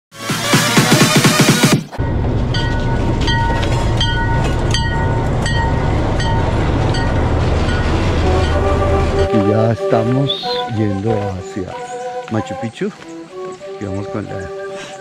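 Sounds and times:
train wheels clacking: 2.0s - 9.7s
train rolling past: 2.0s - 12.7s.

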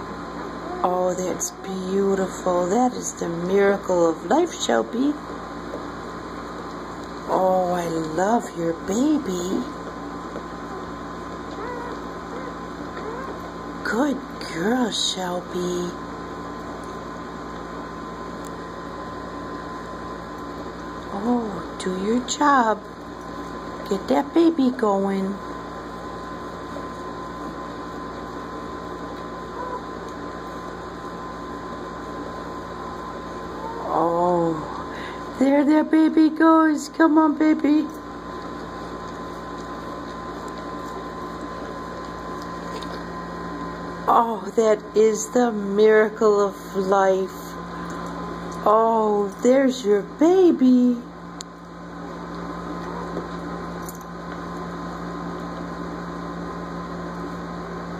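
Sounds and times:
background hum and hiss: 0.0s - 57.9s.

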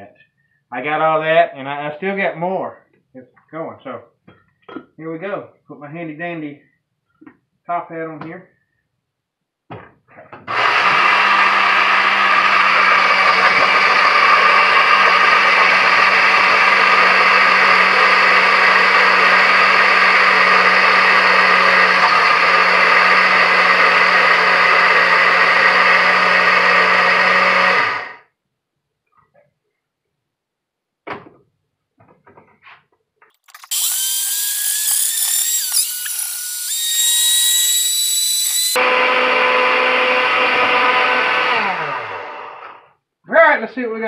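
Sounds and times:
blender grinding: 10.4s - 28.3s, 33.4s - 42.9s.

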